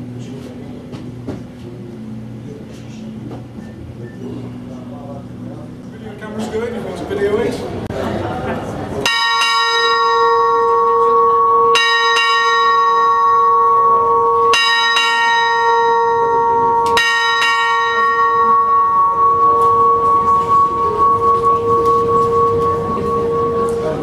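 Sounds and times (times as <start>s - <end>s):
bell ringing: 9.1s - 24.0s.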